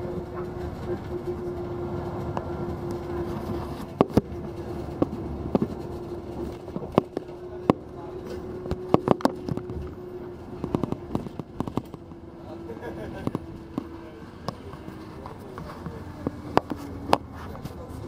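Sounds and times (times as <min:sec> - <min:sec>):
road and engine rumble: 0:00.0 - 0:18.0
sharp clicks and knocks: 0:02.2 - 0:12.2.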